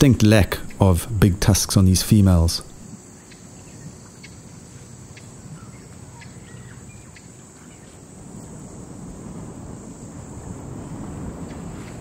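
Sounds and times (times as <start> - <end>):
steady low rush: 0.0 - 2.8
insects: 0.0 - 12.0.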